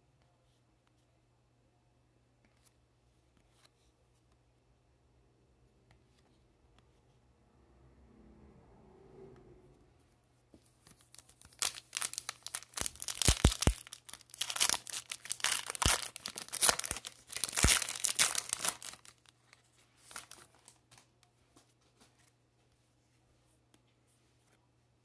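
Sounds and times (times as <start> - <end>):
cards rustling: 10.7 - 22.4
foil wrapper crackling: 10.9 - 19.3, 20.0 - 20.6.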